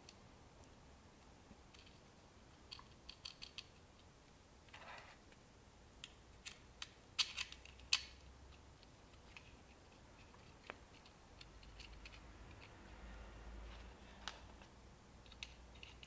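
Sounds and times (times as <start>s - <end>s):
clicks and taps handling circuit boards: 6.0s - 12.7s.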